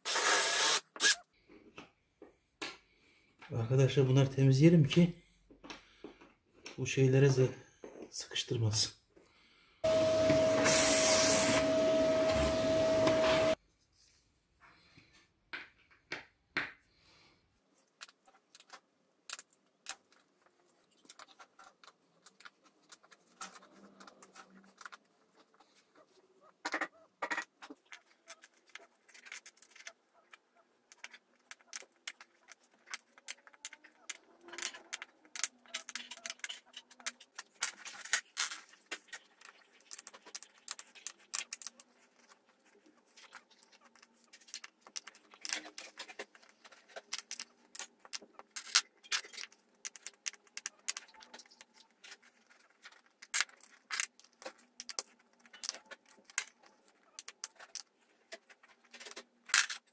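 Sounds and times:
screwdriver clicking and rattling: 43.2 - 59.9.

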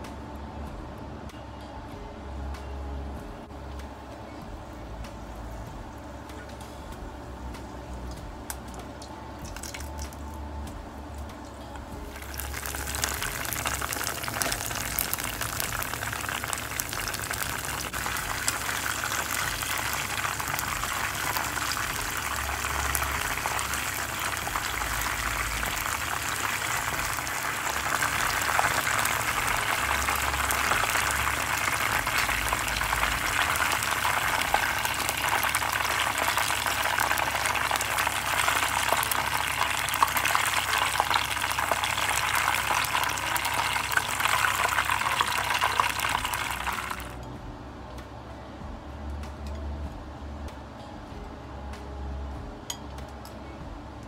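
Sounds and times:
fritters sizzling in hot oil: 12.0 - 47.1.

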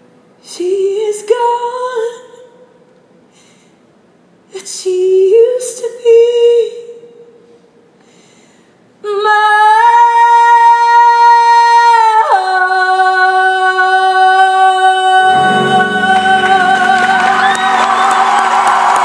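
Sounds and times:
woman singing high notes: 9.1 - 18.2
crowd cheering: 15.4 - 19.0.

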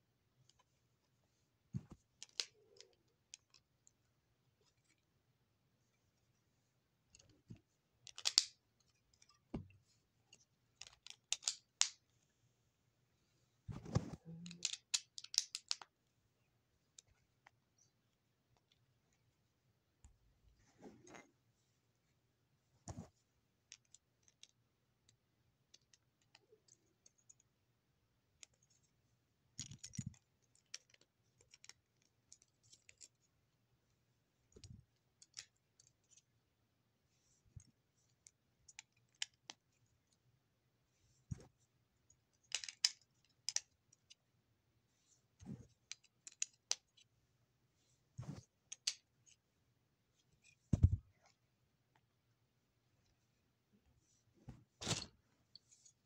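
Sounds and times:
plastic bricks clicking: 8.1 - 8.6, 10.8 - 12.0, 14.4 - 15.9
soft thumps: 50.7 - 51.0.

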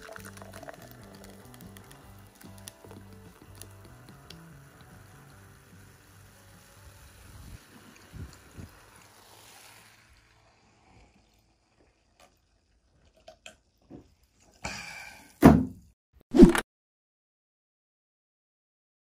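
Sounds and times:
carbonated drink fizzing: 0.0 - 14.4.

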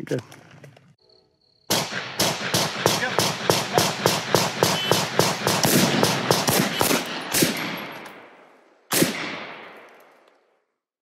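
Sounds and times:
gunshots: 1.7 - 10.3.

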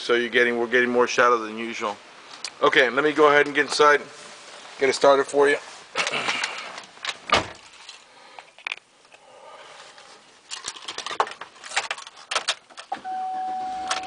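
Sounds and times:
dashboard chime: 13.0 - 14.0.

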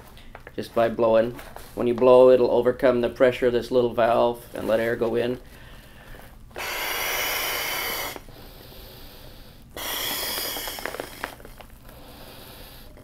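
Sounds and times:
quiet breath: 5.4 - 13.0
man blowing into inflation tube: 6.6 - 13.0.

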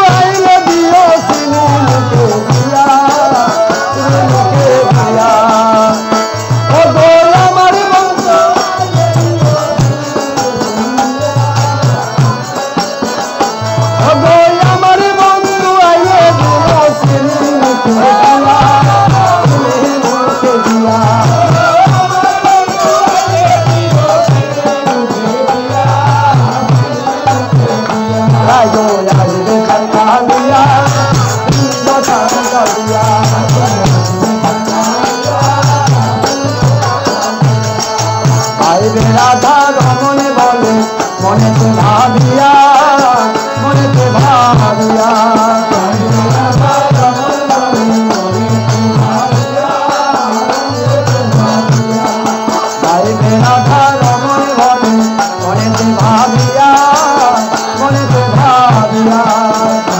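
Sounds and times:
voices singing: 0.0 - 59.9.

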